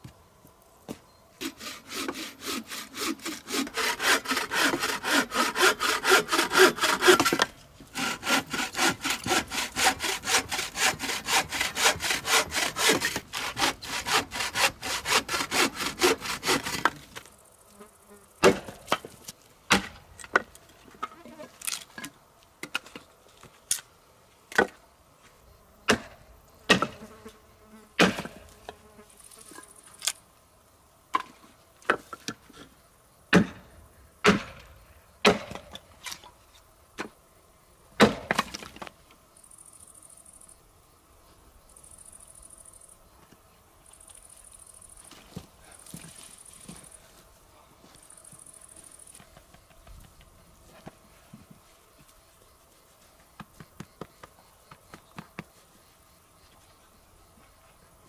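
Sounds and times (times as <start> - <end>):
bow saw cutting log: 1.4 - 17.2.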